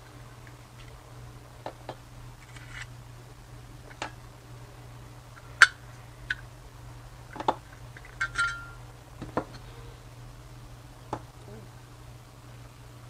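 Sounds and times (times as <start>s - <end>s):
low steady hum: 0.0s - 13.0s
metal parts clicking and clinking: 8.0s - 8.8s.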